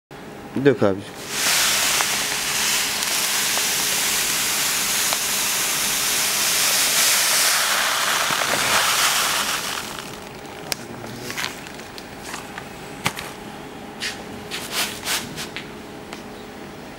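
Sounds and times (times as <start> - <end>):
granules pouring into plastic tray: 1.2 - 10.5.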